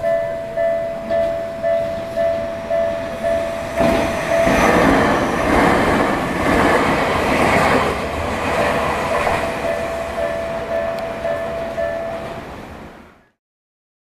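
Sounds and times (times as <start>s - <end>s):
level-crossing bell ringing: 0.0s - 6.3s, 8.6s - 12.7s
electric train passing: 0.0s - 13.4s.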